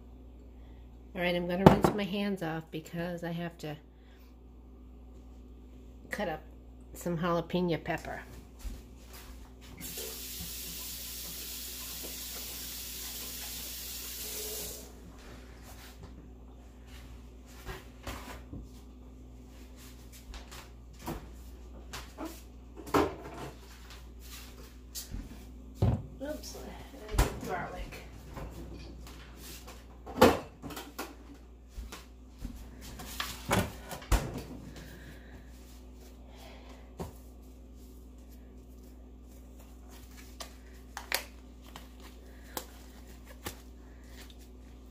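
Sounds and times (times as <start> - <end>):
knocks of kitchen items handled: 1.6 - 2.0
faint scuffing: 8.3 - 9.8
faucet water running: 9.8 - 15.0.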